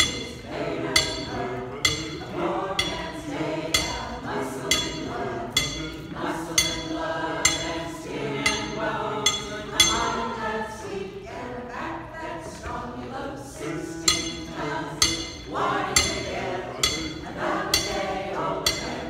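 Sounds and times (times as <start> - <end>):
choir singing: 0.0 - 19.0
ringing metal clinks: 1.0 - 10.4, 14.0 - 19.0.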